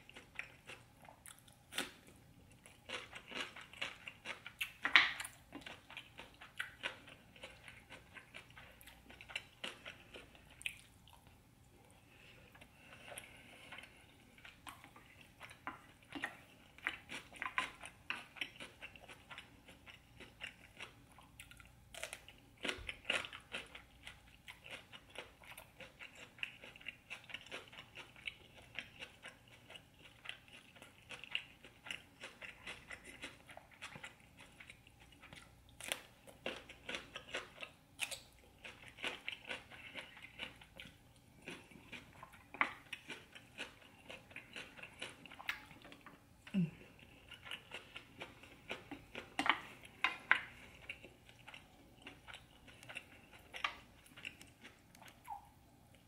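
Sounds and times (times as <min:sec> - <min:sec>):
crunching cucumber: 0:15.5 - 0:45.7.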